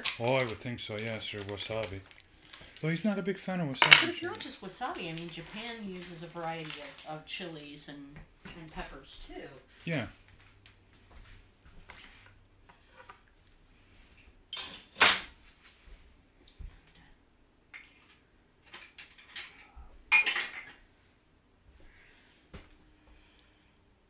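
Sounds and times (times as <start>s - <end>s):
quiet rustling: 0.4s - 17.2s
plates and utensils knocking: 3.8s - 4.2s.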